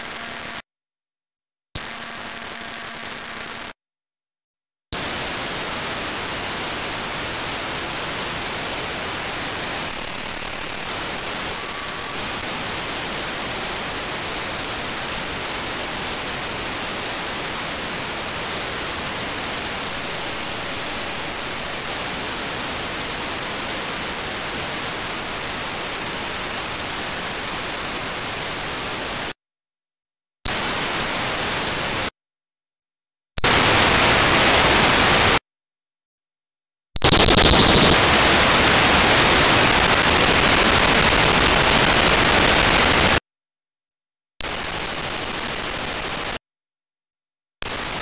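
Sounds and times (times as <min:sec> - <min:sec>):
radio receiver hiss: 0:05.0 - 0:29.4, 0:30.5 - 0:32.1, 0:37.0 - 0:43.2.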